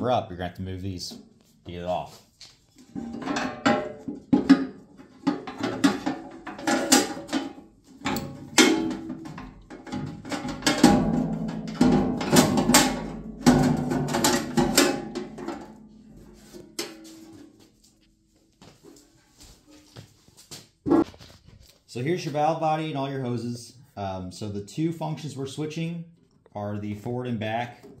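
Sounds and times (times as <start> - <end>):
metal cover and levers clanking: 3.0 - 15.8.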